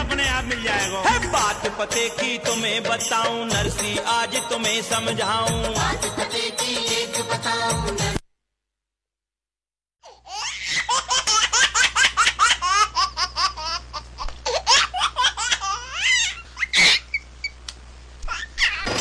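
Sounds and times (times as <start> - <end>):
child laughing hard: 10.2 - 17.2.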